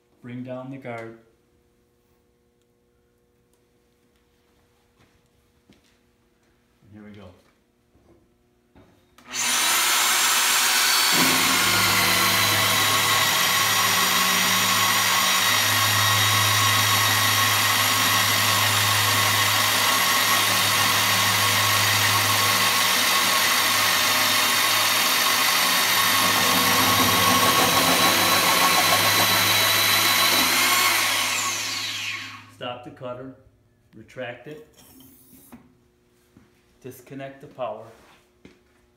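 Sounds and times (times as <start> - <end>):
tube cutter whining: 9.2 - 32.6.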